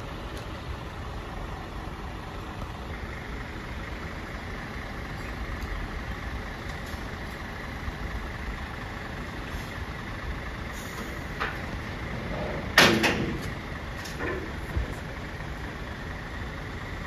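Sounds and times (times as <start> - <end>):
diesel truck engine idling: 0.0 - 17.0.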